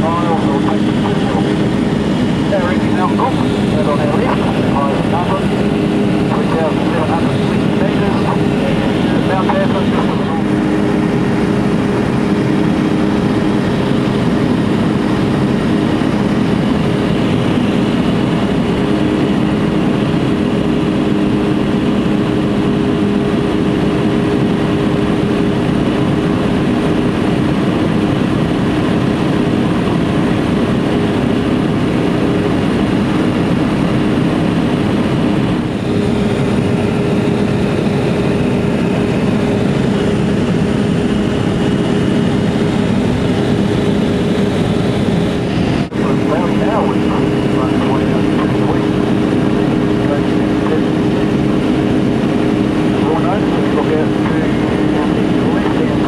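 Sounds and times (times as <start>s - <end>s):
aircraft engine and propeller drone: 0.0s - 56.0s.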